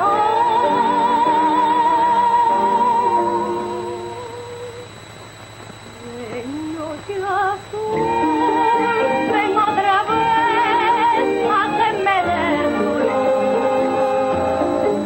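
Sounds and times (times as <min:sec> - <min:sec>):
woman singing operatically: 0:00.0 - 0:04.8, 0:06.0 - 0:15.0
musical accompaniment: 0:07.9 - 0:15.0.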